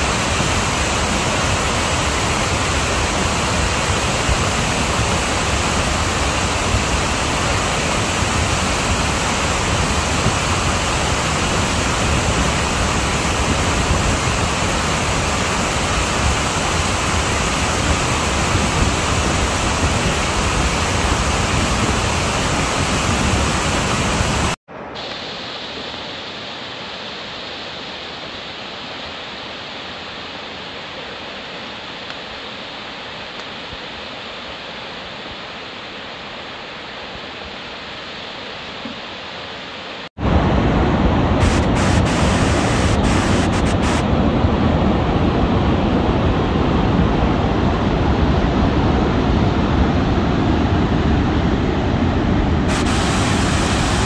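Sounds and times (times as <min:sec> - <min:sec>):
steam eruption rushing: 0:00.0 - 0:24.6, 0:40.2 - 0:54.0.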